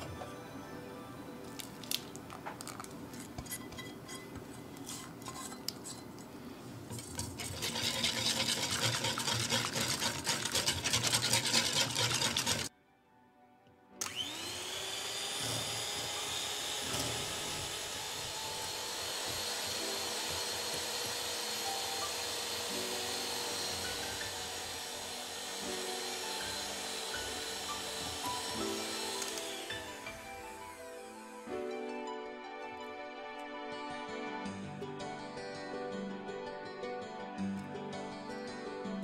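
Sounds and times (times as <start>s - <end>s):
whisk scraping glass bowl: 3.4s - 6.0s, 7.0s - 12.7s
electric hand mixer whining: 7.4s - 12.7s, 14.0s - 31.7s.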